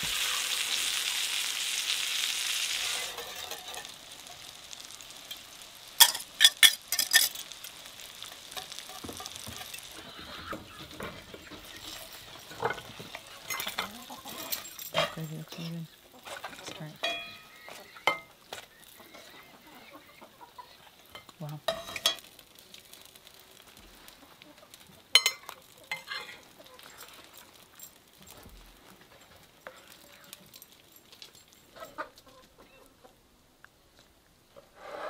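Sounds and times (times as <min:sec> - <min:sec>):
metal utensils clinking on plates: 0:02.8 - 0:04.0, 0:06.0 - 0:07.6, 0:08.3 - 0:18.3, 0:21.1 - 0:22.3, 0:25.1 - 0:27.9
chickens clucking: 0:08.6 - 0:14.6, 0:16.0 - 0:21.1, 0:24.0 - 0:27.0, 0:31.7 - 0:33.2.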